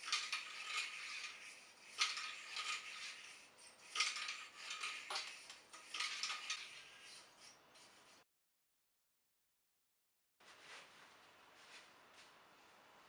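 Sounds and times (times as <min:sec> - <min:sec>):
cleaning rod scraping in barrel: 0:00.0 - 0:08.2.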